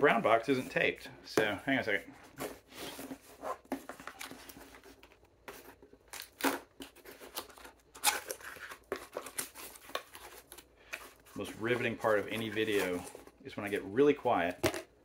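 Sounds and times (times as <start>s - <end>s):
cardboard rustling and tearing: 2.3s - 13.4s.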